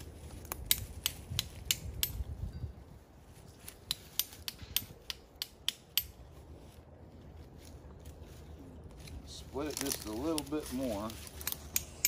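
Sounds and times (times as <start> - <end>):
hatchet tapping and splitting stick: 0.5 - 2.4, 3.6 - 6.3, 11.3 - 12.0.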